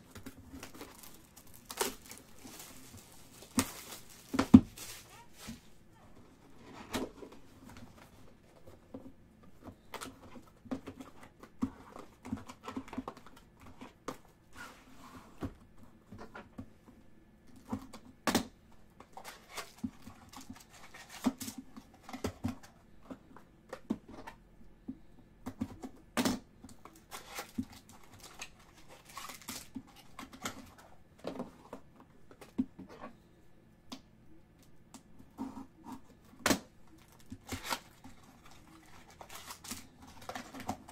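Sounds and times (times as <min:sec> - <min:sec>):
foil wrappers crinkling: 0:00.0 - 0:05.8, 0:26.9 - 0:30.7, 0:36.9 - 0:40.9.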